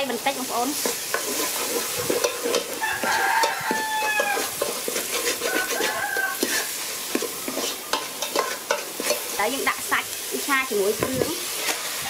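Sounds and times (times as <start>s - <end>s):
curry paste sizzling: 0.0s - 12.0s
metal ladle scraping a pot: 0.7s - 9.4s, 11.0s - 12.0s
rooster crowing: 2.7s - 4.6s, 5.3s - 6.9s.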